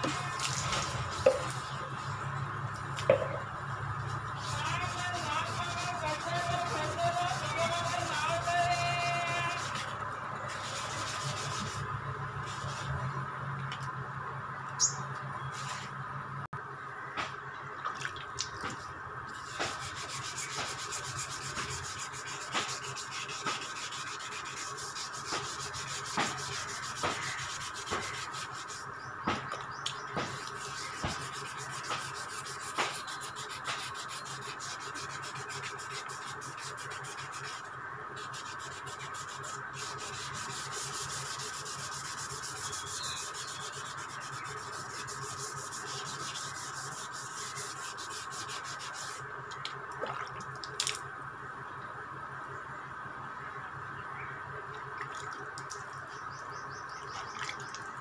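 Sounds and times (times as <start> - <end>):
sandpaper rubbing by hand: 0.0 - 2.0, 4.1 - 13.0, 19.3 - 29.5, 30.2 - 49.3.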